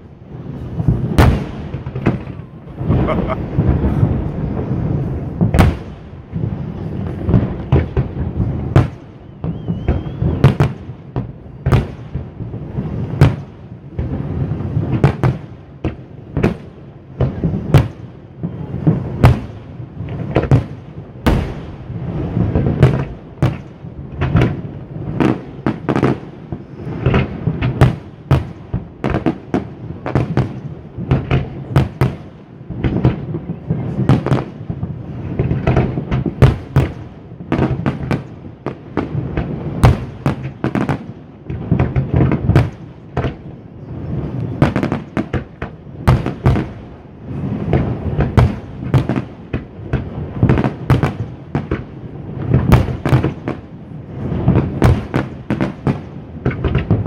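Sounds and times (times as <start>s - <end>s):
continuous low rumble: 0.0s - 10.1s
fireworks bangs and crackles: 0.0s - 57.0s.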